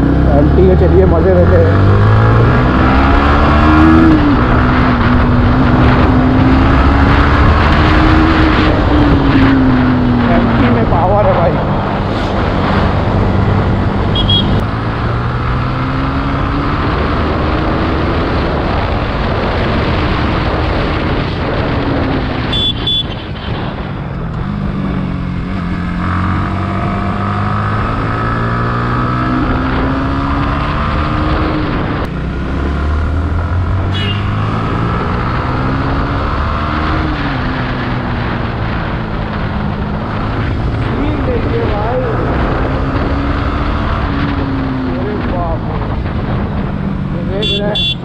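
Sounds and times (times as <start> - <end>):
motorcycle engine accelerating: 0.0 - 48.0
wind noise: 0.0 - 48.0
high beep: 14.1 - 14.6.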